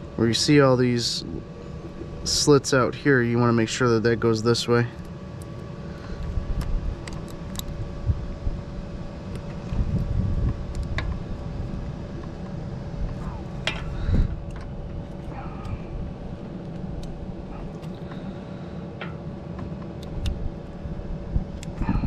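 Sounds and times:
low rumble: 0.0 - 4.5, 6.0 - 18.6.

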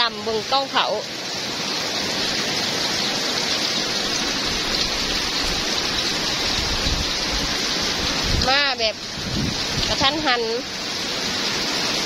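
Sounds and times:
heavy rain pouring: 0.0 - 12.0
low gusty rumbling: 3.9 - 10.5.

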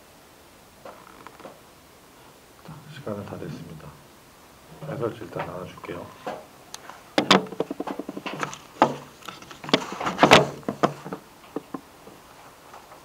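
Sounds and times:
knocks and handling clatter: 6.2 - 13.0
paper rustling and flapping: 7.2 - 11.8.

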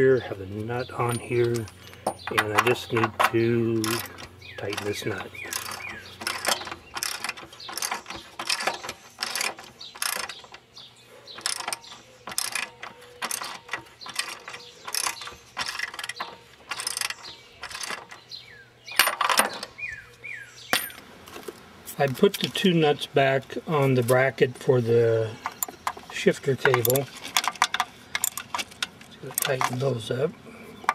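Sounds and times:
ratchet wrench clicking: 1.1 - 10.6, 11.4 - 18.1.

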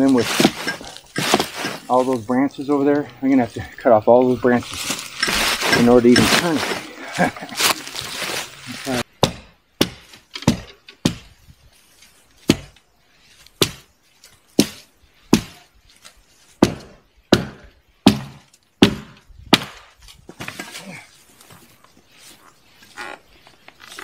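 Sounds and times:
axe chopping branches: 0.0 - 2.1, 4.7 - 11.3, 12.4 - 12.8, 13.4 - 21.0
rough rustling noise: 0.0 - 9.1, 10.0 - 16.6, 19.9 - 24.0.

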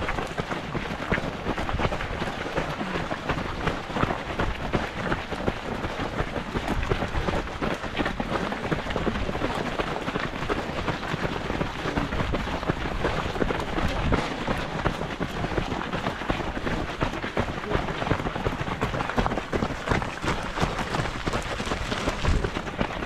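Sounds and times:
running footfalls: 0.0 - 23.0
wind rushing over microphone: 20.4 - 22.7.

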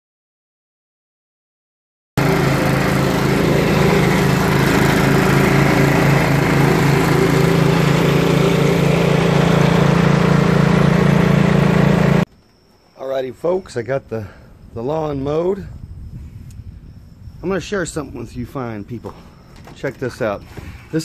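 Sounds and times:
tractor mower engine drone: 2.2 - 15.2.

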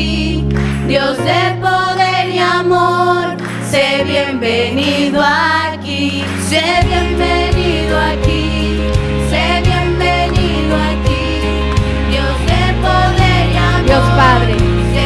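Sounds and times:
women singing together: 0.0 - 15.0
low bass notes: 6.8 - 15.0.

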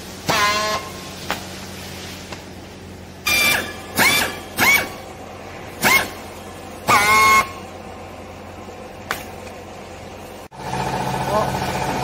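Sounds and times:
strapping tool squealing: 3.3 - 5.0, 5.8 - 6.2.

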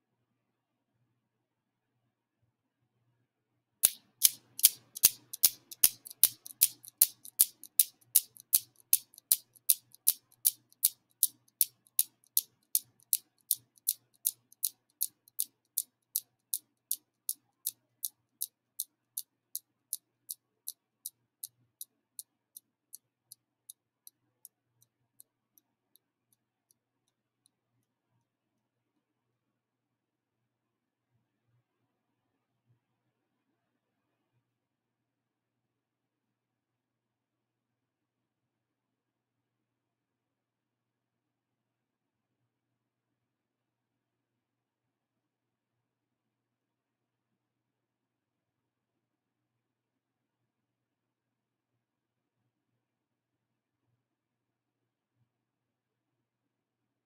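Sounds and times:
metal balls clacking together: 3.8 - 14.0.

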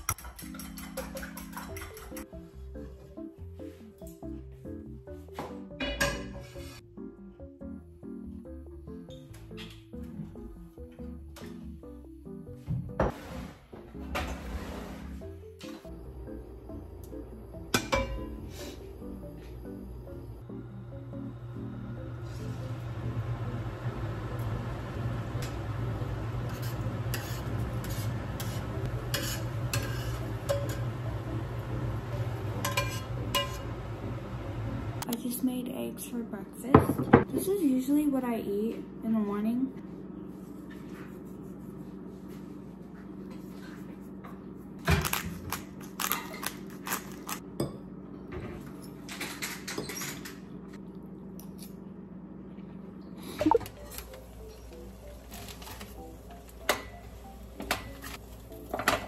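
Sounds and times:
metal fork clinking on a plate: 0.0 - 2.2
spatula scraping pan: 6.1 - 6.8, 26.5 - 30.9
low hum: 15.8 - 35.1.

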